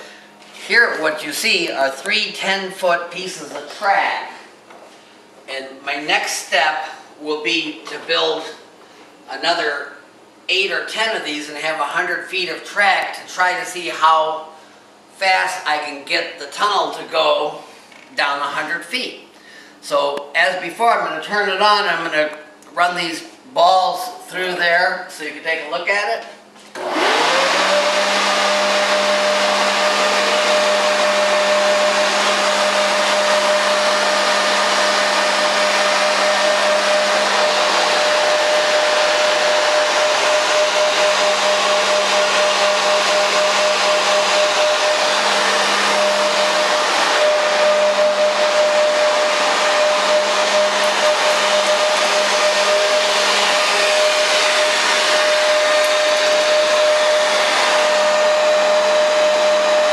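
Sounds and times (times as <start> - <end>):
leaf blower whining: 26.6 - 59.9.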